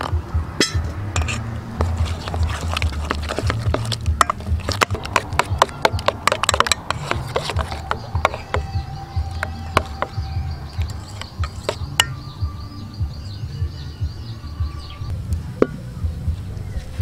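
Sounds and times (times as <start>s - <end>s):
spoon stirring batter in bowl: 1.2s - 12.2s
spoon clinking against bowl: 3.7s - 12.4s.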